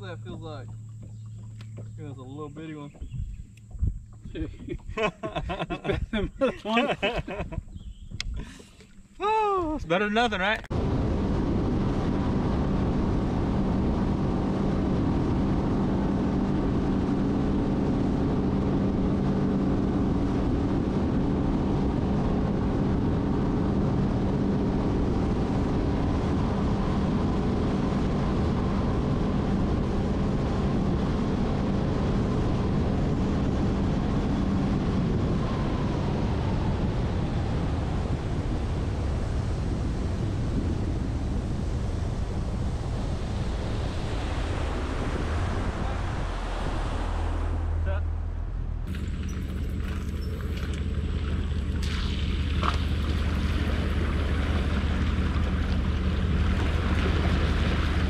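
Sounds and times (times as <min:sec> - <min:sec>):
outboard motor running: 0:00.0 - 0:58.0
wind: 0:00.0 - 0:58.0
water rushing: 0:08.3 - 0:10.6, 0:41.0 - 0:58.0.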